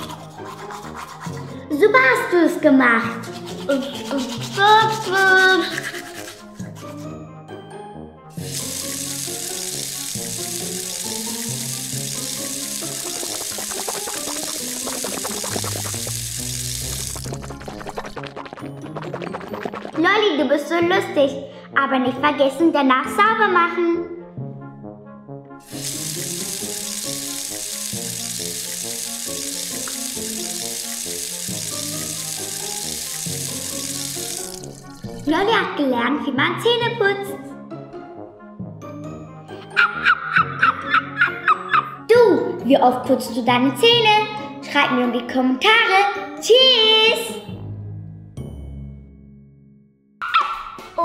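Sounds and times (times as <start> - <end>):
background music: 0.0 - 51.0
running water hiss: 8.4 - 20.0, 25.6 - 35.6.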